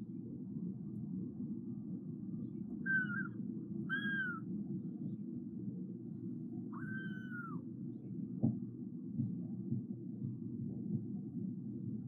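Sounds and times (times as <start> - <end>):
steady low rumble: 0.0 - 12.0
kitten mewing: 3.9 - 4.4, 6.8 - 7.6.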